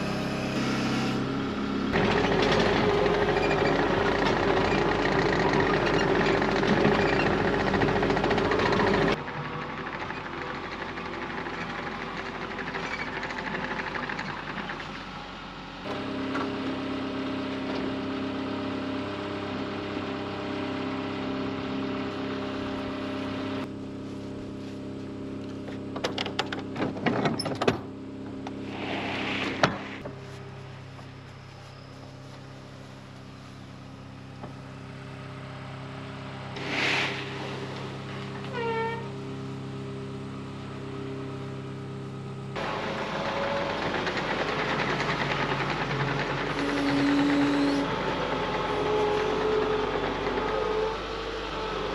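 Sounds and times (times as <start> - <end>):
diesel engine running: 0.0 - 51.9
metal door scraping: 28.6 - 30.0.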